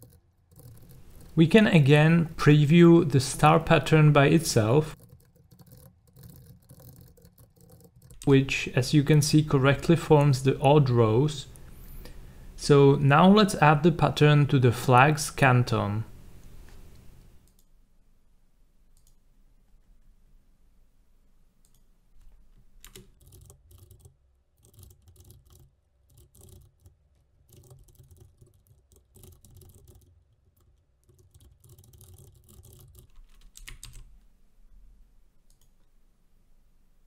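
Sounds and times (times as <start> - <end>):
typing on keyboard: 0.0 - 1.4, 3.4 - 8.3, 22.8 - 34.1.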